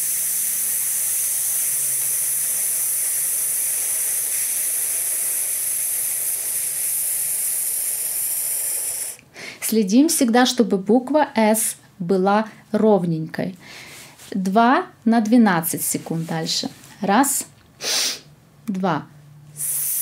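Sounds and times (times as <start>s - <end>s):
woman's long hissed exhale: 17.8s - 18.3s, 19.6s - 20.0s.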